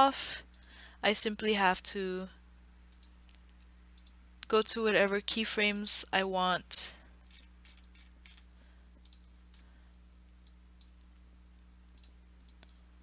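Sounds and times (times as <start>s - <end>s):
low steady hum: 0.0s - 13.0s
computer mouse clicks: 2.9s - 4.2s, 9.0s - 9.3s, 11.9s - 12.7s.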